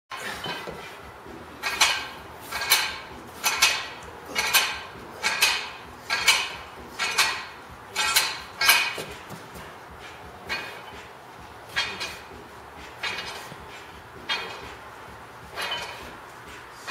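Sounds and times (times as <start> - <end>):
barbell weight plates clinking: 0.2 - 0.9, 1.6 - 9.7, 10.5 - 11.0, 11.7 - 12.3, 13.0 - 14.8, 15.5 - 16.2.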